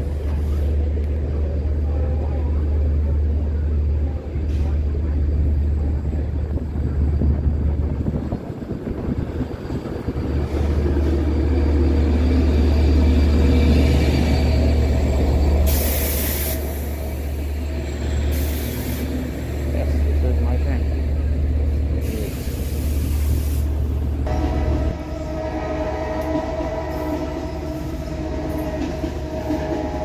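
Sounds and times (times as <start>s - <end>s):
train cars rumbling past: 0.0s - 30.0s
air brakes hissing: 15.5s - 17.4s, 18.2s - 19.3s, 22.0s - 24.0s.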